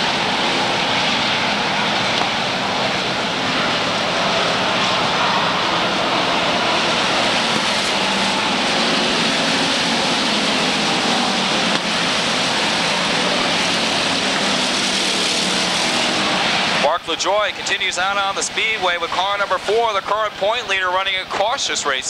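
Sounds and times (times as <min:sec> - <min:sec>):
race car engines droning: 0:00.0 - 0:22.0.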